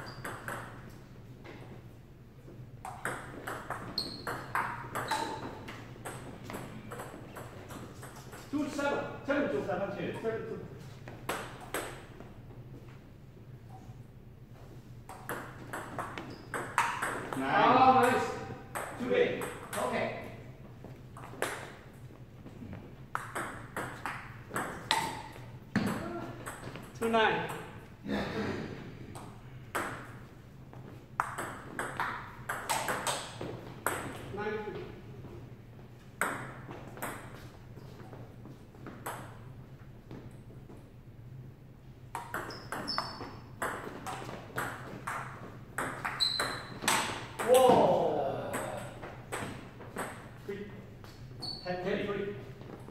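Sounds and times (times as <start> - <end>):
table tennis ball hitting paddles: 0.0 - 1.7, 2.8 - 8.5, 11.1 - 12.1, 15.0 - 17.4, 21.1 - 22.0, 23.1 - 27.8, 29.1 - 34.4, 42.1 - 50.4.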